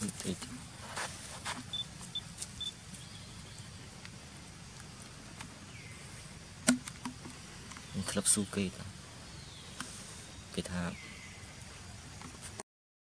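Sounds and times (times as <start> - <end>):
quiet outdoor background: 0.0 - 12.6
coconut cracking: 6.6 - 7.9.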